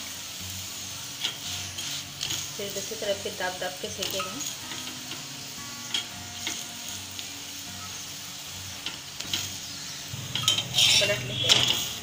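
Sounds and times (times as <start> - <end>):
flatbread sizzling on griddle: 0.0 - 12.0
metal spatula scraping and tapping: 1.2 - 2.5, 5.8 - 6.7, 8.8 - 12.0.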